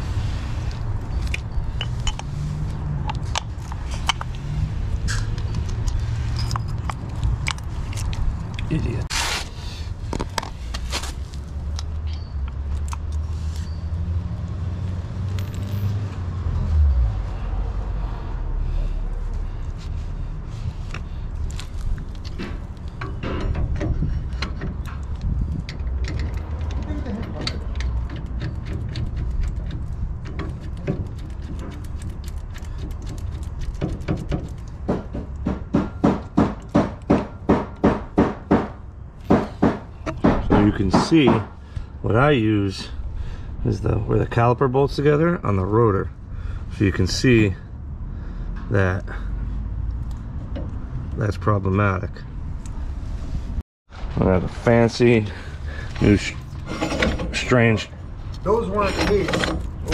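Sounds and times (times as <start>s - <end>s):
brake caliper metallic clinks: 1.1s - 2.3s, 56.0s - 59.9s
tools knocking on metal: 33.8s - 41.6s.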